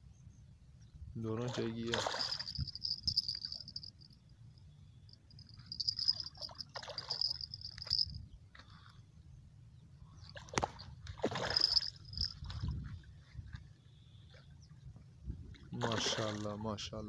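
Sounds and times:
fish splashing at water surface: 1.9s - 3.0s, 10.4s - 12.3s
high insect buzz: 5.1s - 8.2s.

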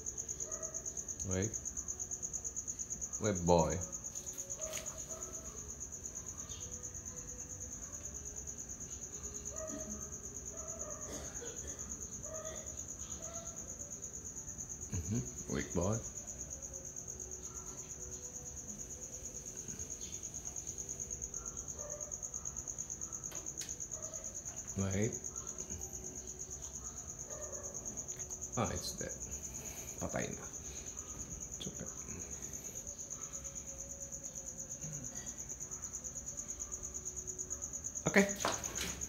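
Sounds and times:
insects chirring: 0.0s - 39.0s
man speaking: 28.6s - 29.2s, 30.0s - 30.5s, 38.1s - 38.5s.

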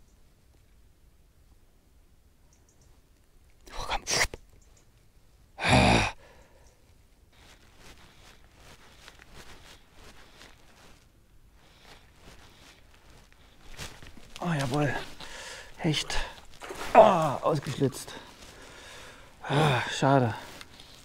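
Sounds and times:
person sighing loudly: 5.6s - 6.6s, 15.2s - 17.5s, 18.2s - 20.5s
faint rustling: 6.8s - 21.0s.

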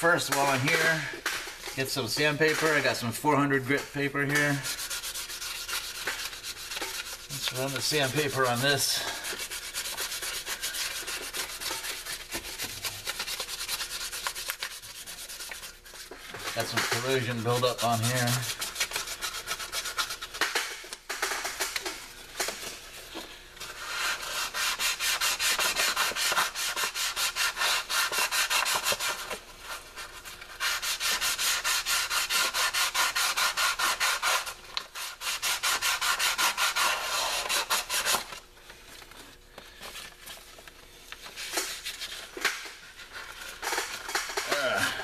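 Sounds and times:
sandpaper rubbing on metal: 1.8s - 21.5s, 23.7s - 38.4s.

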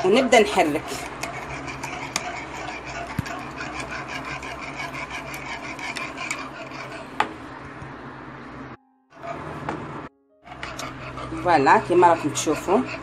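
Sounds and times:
wire whisk scraping a saucepan: 0.0s - 7.2s, 10.5s - 13.0s.

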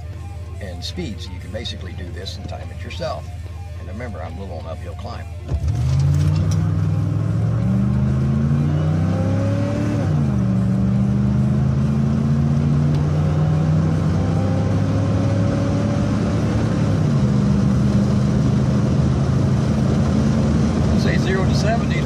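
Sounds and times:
pickup engine accelerating hard: 5.5s - 22.0s.

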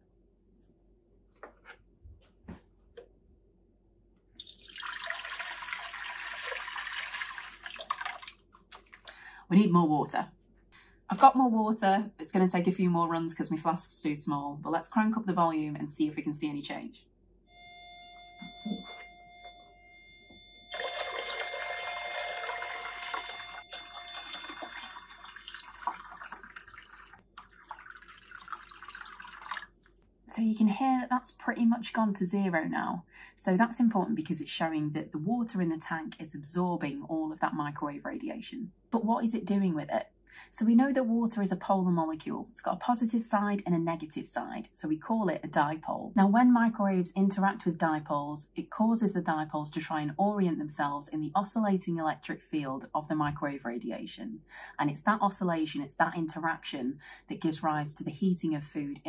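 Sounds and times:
water pouring into plastic tank: 4.4s - 9.2s, 20.7s - 29.8s
steady speaker tone: 17.6s - 25.3s.

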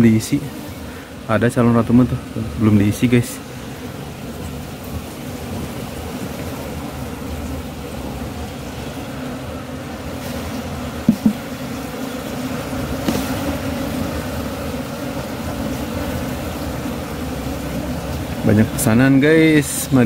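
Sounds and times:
honeybees buzzing: 0.0s - 20.0s
wooden knocks: 11.1s - 11.5s.

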